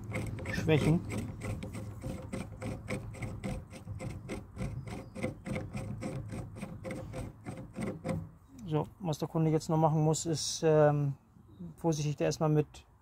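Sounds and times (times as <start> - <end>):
rapid even ticking: 0.0 - 8.3.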